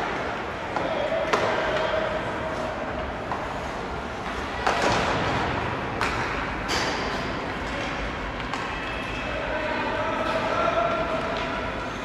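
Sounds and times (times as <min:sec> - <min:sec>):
sticks and puck hitting boards: 0:00.0 - 0:02.0, 0:04.2 - 0:08.9
arena background noise: 0:00.0 - 0:12.0.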